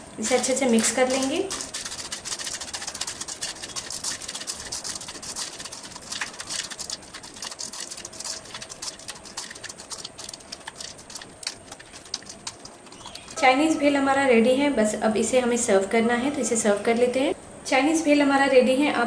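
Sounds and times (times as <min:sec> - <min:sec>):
spoon tossing crunchy noodles in bowl: 0:00.2 - 0:13.4.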